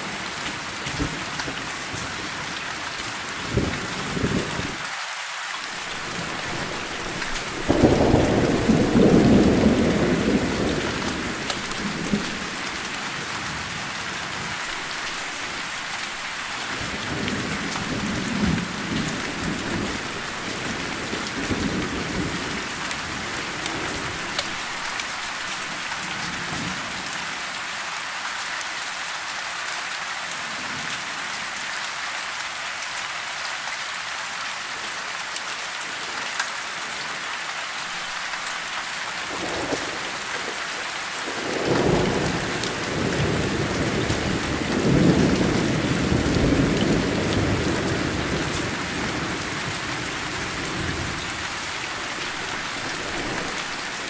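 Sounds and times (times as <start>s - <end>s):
steady rain: 0.0s - 54.0s
rolling thunder: 6.0s - 12.7s.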